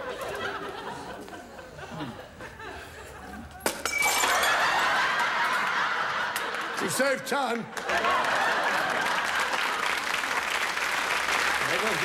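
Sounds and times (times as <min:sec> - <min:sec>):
audience laughter: 0:00.0 - 0:03.6, 0:04.5 - 0:09.9
glass bottle smashing: 0:03.6 - 0:04.8
audience applause: 0:05.0 - 0:12.0.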